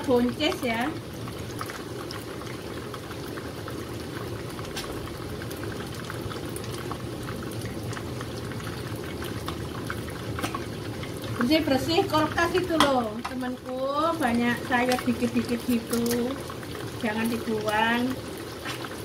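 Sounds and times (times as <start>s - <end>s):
fish frying in oil: 0.0s - 19.0s.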